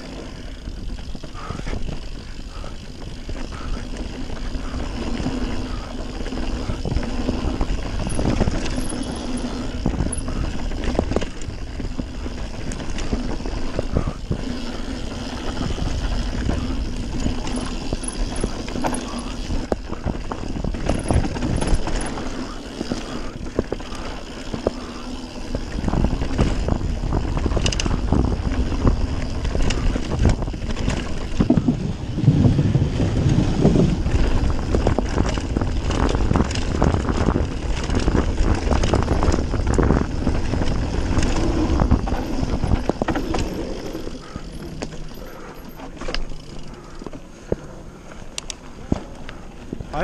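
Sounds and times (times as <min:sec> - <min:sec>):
bike rattling over bumps: 0:00.0 - 0:50.0
bike tyres rumbling on dirt: 0:00.0 - 0:50.0.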